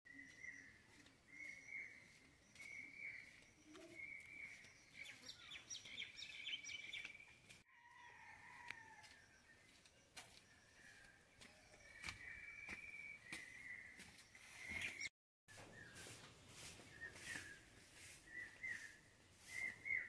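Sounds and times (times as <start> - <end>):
quick bird chirps: 12.8 - 20.0.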